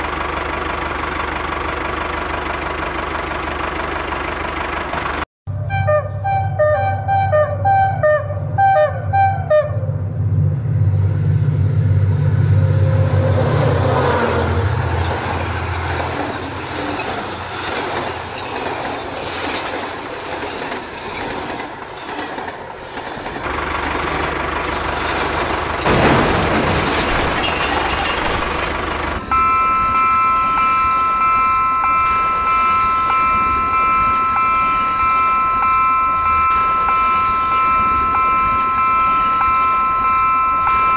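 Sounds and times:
train rumbling: 0.0 - 40.9
train horn chord: 5.5 - 10.0.

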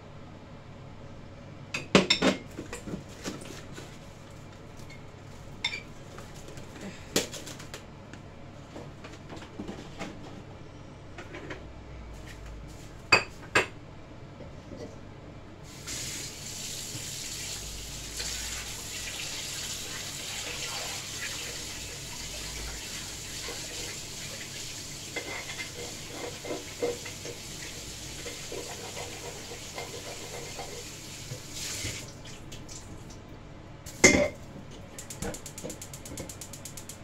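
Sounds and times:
clatter of pots and dishes: 1.8 - 4.0, 25.1 - 27.4, 28.2 - 30.8, 33.9 - 34.5
tap running: 33.9 - 37.0.

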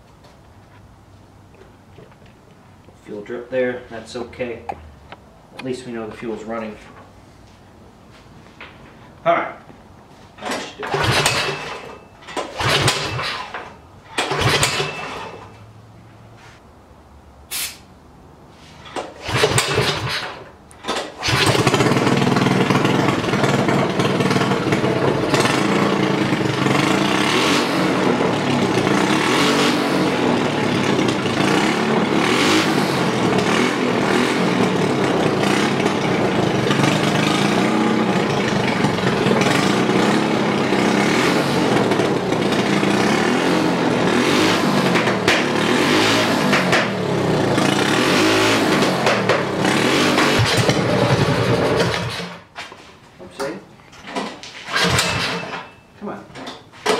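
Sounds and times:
starter rope pulls: 10.4 - 15.5, 18.8 - 27.2, 47.6 - 52.4, 54.0 - 55.7
small engine running: 10.9 - 11.8, 12.4 - 13.5, 14.2 - 15.4, 19.2 - 20.4, 21.2 - 52.4, 54.7 - 55.5.

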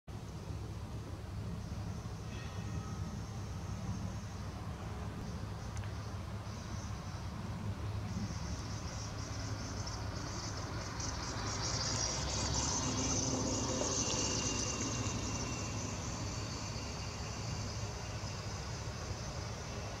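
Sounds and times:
insects chirping in fast buzz: 0.3 - 20.0.

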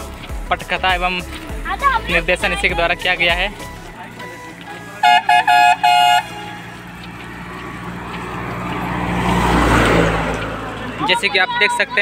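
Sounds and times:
bus engine and tyre noise: 0.0 - 12.0
vehicle horn honking: 4.9 - 6.8.

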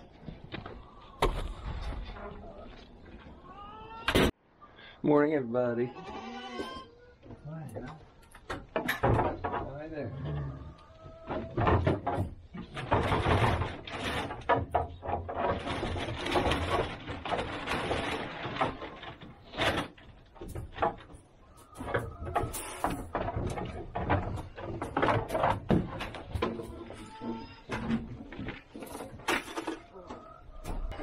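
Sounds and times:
rustling and shuffling: 10.5 - 31.0
hooves knocking on wooden boards: 11.0 - 31.0.

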